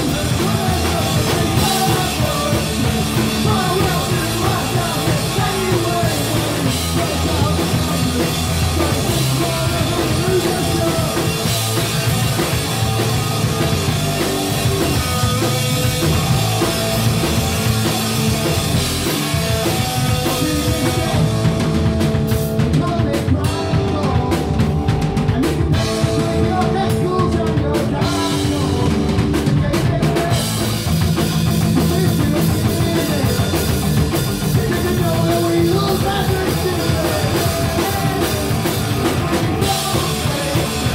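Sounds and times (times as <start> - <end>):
man singing into microphone: 0.0 - 11.6, 20.1 - 21.4, 22.7 - 30.8, 31.6 - 33.8, 34.4 - 40.9
bass guitar: 0.0 - 40.9
distorted electric guitar: 0.0 - 40.9
drum kit: 0.0 - 40.9.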